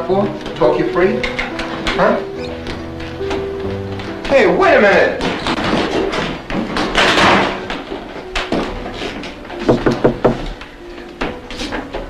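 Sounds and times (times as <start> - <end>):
door banging shut: 5.1 - 8.8, 9.5 - 10.5
knocking on door: 9.6 - 10.5.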